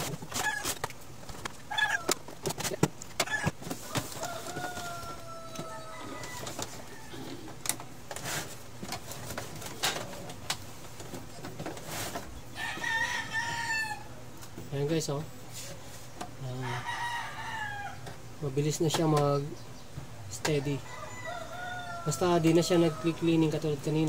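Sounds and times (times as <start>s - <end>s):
rooster crowing: 1.7s - 2.2s, 3.3s - 7.5s, 12.5s - 14.2s, 16.6s - 18.1s, 20.6s - 23.6s.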